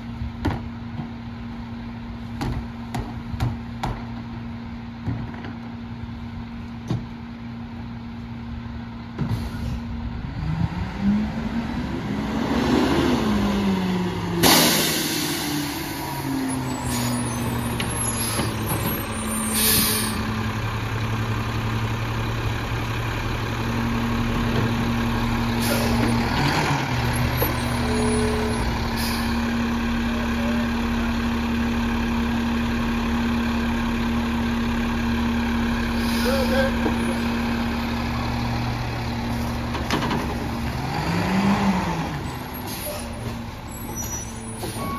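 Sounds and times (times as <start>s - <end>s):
air brake hiss: 9.3s - 9.9s, 19.4s - 20.2s, 36.0s - 36.7s
garbage truck engine revving: 10.2s - 44.9s.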